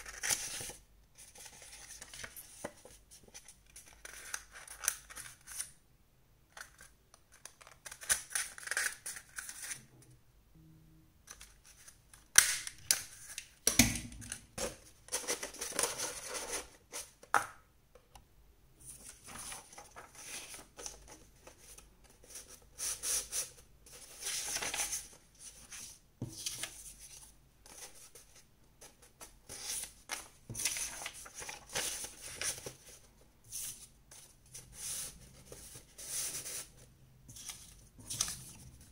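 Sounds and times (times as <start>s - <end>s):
paper rustling and crinkling: 14.6s - 17.1s, 18.9s - 22.4s, 23.9s - 38.9s.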